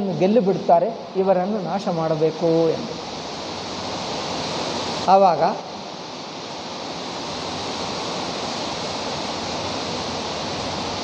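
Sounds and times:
steady rushing noise: 0:00.0 - 0:11.0.

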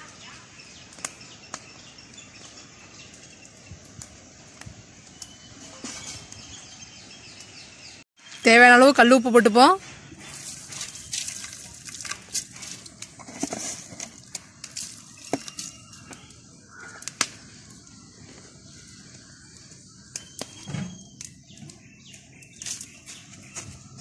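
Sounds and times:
small bird calls: 0:14.2 - 0:24.0.

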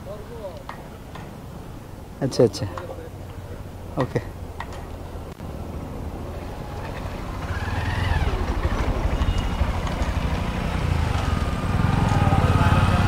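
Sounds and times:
vehicle engine running with whine: 0:05.0 - 0:13.0.

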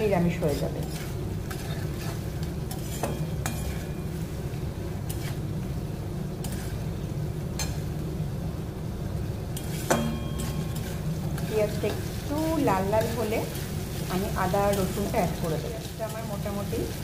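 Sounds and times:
food sizzling: 0:00.0 - 0:17.0
metal spatula scraping pan: 0:00.4 - 0:04.1, 0:05.1 - 0:05.5, 0:06.4 - 0:06.9, 0:09.6 - 0:17.0
spatula tapping pan: 0:09.6 - 0:12.1.

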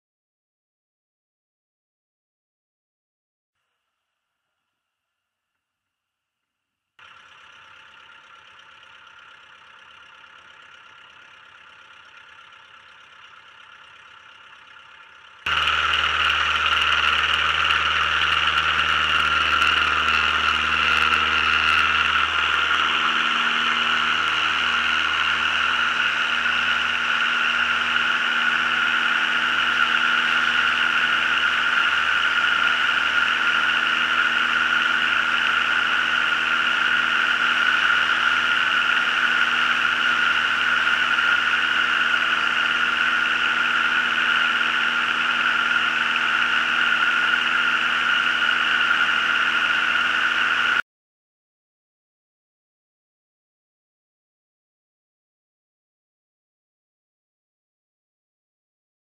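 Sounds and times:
light aircraft engine and propeller: 0:07.0 - 0:50.8.

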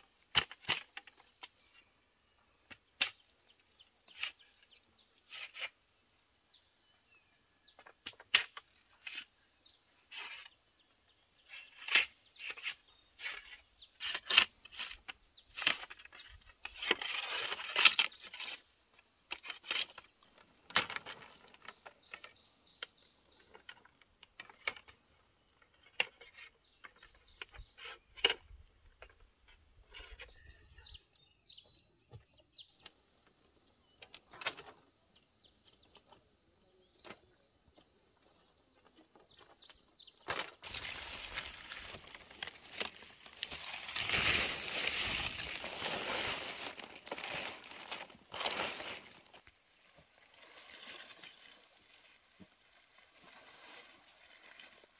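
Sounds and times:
bamboo scraping and tearing: 0:02.8 - 0:05.9, 0:07.8 - 0:30.5, 0:40.2 - 0:54.9.

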